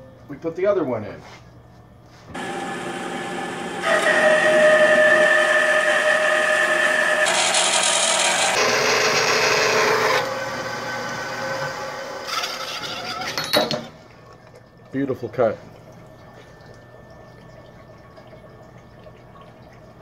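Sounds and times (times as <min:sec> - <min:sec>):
bandsaw cutting steel: 0:02.4 - 0:13.3.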